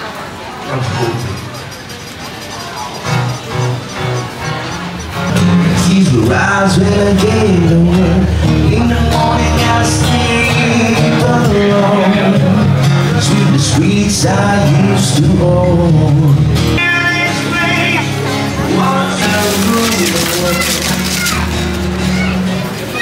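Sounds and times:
music with singing voice: 5.1 - 23.0.

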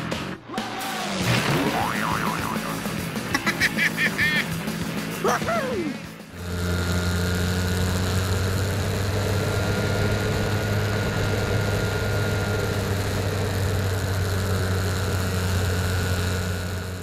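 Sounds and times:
electric motor and propeller drone: 6.0 - 17.0.

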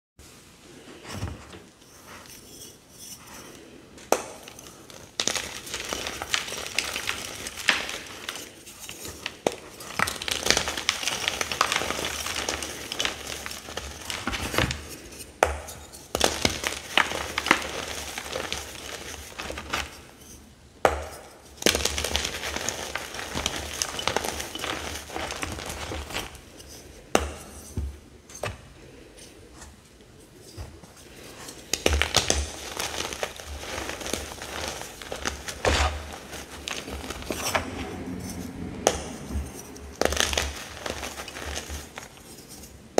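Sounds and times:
chalk blocks crunching by hand: 4.2 - 20.1, 20.9 - 29.7, 30.4 - 42.8.

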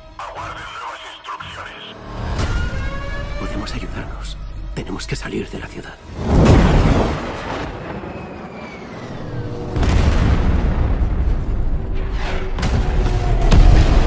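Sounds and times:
trailer music score: 0.0 - 14.0
deep explosion boom: 9.4 - 12.0
sharp booms: 9.5 - 11.9.

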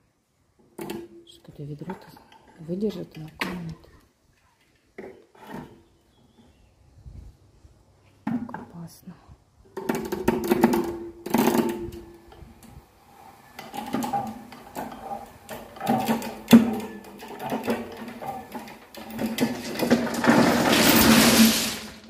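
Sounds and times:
rope hoist clicking and creaking: 13.6 - 21.9.

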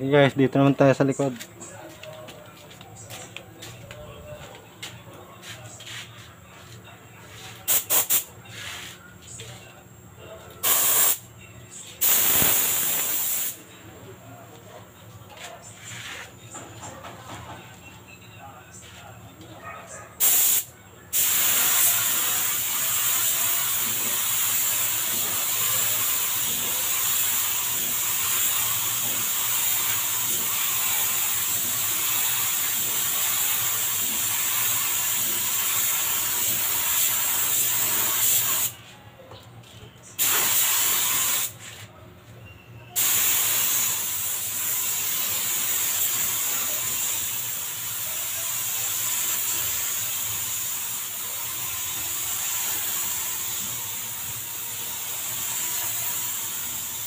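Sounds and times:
paint spray gun hissing: 7.7 - 8.8, 10.6 - 11.2, 12.0 - 13.6, 20.2 - 38.8, 40.2 - 41.6, 43.0 - 57.0.

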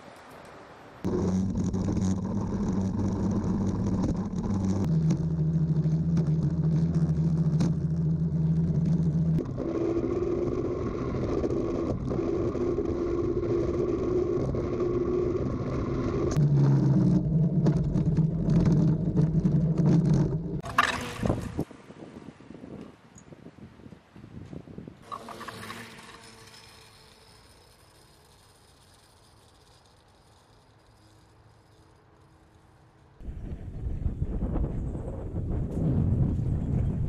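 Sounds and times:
rail bike rumbling on rails: 1.0 - 21.7, 25.0 - 37.0.

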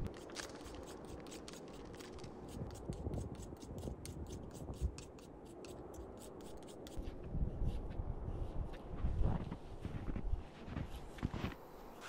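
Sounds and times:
knife shaving wood: 0.0 - 7.0.

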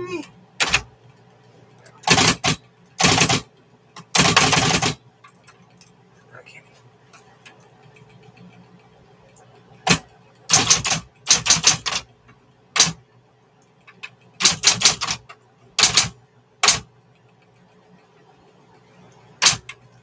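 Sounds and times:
faint steady hum: 0.0 - 20.0
electric typewriter keystrokes: 0.6 - 0.9, 2.0 - 5.0, 9.8 - 12.1, 12.8 - 13.0, 14.0 - 16.9, 19.4 - 19.8.

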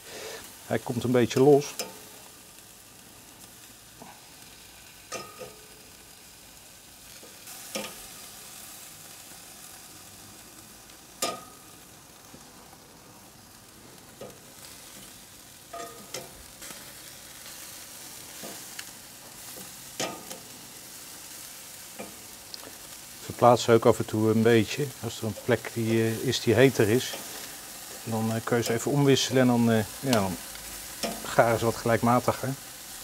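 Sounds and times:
chicken sizzling on a grill: 0.0 - 33.0
metal tongs clinking on grate: 1.3 - 2.1, 5.1 - 5.7, 7.2 - 8.0, 11.2 - 11.6, 15.7 - 16.4, 19.6 - 20.5, 22.0 - 22.6, 30.9 - 31.4.

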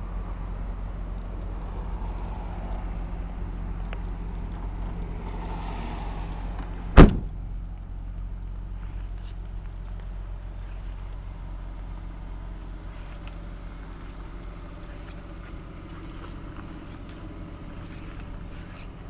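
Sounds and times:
steady low hum: 0.0 - 19.0
car trunk lid slamming: 6.9 - 7.6.

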